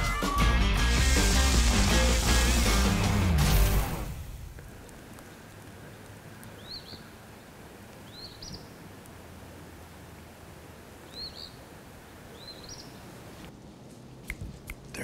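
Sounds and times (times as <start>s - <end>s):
outdoor hiss and hum: 1.0s - 15.0s
songbird calling: 6.5s - 7.2s, 8.0s - 8.8s, 11.0s - 11.7s, 12.3s - 13.2s.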